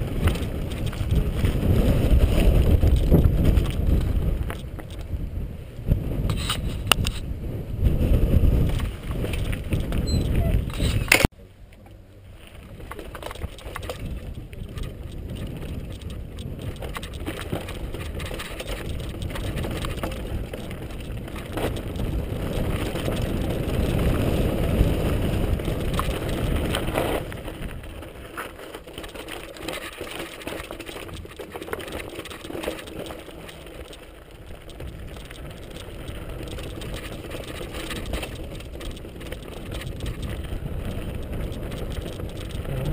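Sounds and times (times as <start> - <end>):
bike rattling: 0.0 - 42.9
wind rumble on microphone: 0.0 - 42.9
tyres crunching over gravel: 11.8 - 42.9.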